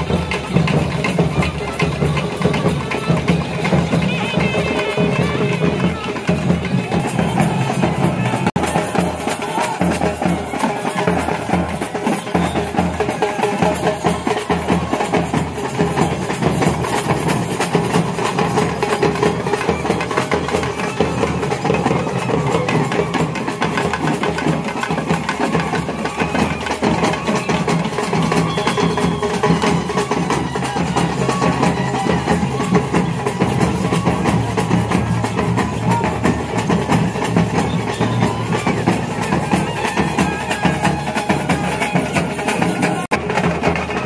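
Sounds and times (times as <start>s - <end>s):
loud music with fast drumming: 0.0s - 44.0s.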